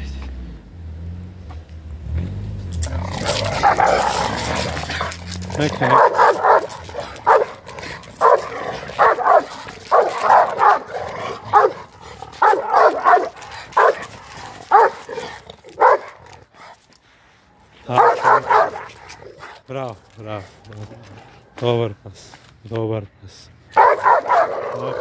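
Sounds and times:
dog barking: 3.4s - 4.3s, 5.6s - 16.4s, 17.9s - 19.6s, 23.7s - 25.0s.

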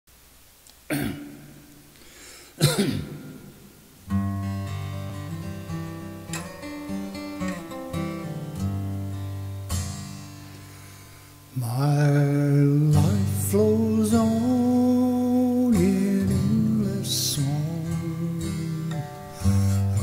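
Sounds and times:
acoustic guitar: 0.6s - 20.0s.

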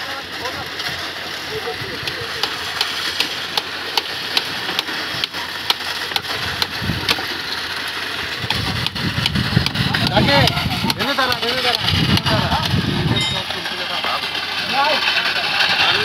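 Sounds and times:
concrete pump running: 0.0s - 16.0s
light regular ticking: 8.5s - 12.3s.

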